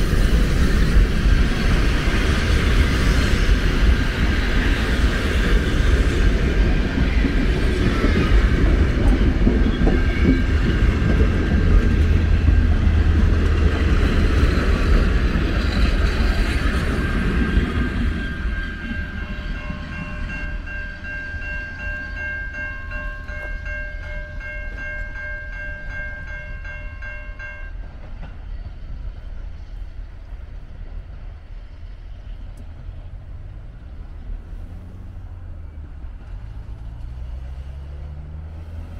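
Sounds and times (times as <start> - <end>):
low rumble of train: 0.0 - 38.9
level crossing warning bell: 16.9 - 27.8
vehicle engine revving: 33.3 - 38.9.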